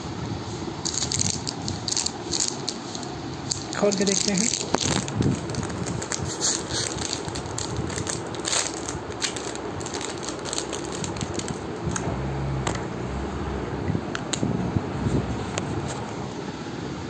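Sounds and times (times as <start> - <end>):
plastic wrapper crinkling: 0.8 - 12.0
low hum: 7.6 - 15.6.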